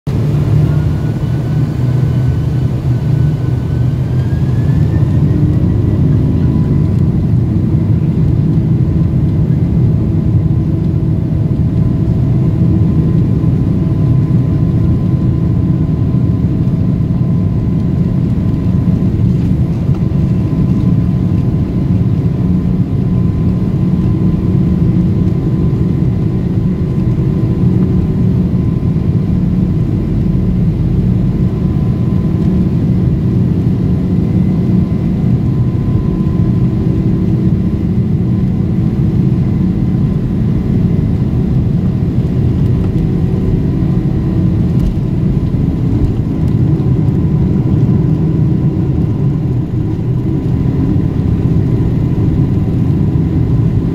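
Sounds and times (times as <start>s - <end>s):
higher whine rising in pitch: 0.1s - 7.6s
jet engines rumbling and whining: 0.1s - 53.9s.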